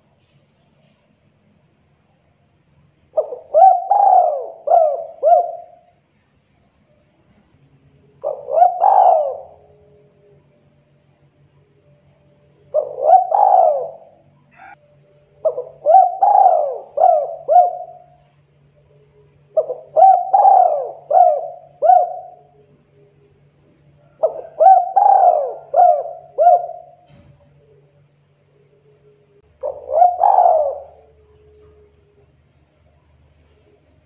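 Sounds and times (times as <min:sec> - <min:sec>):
dove cooing: 0:03.2 - 0:05.9, 0:08.2 - 0:09.9, 0:12.7 - 0:14.8, 0:15.4 - 0:18.2, 0:19.5 - 0:22.6, 0:24.0 - 0:27.1, 0:29.6 - 0:32.0.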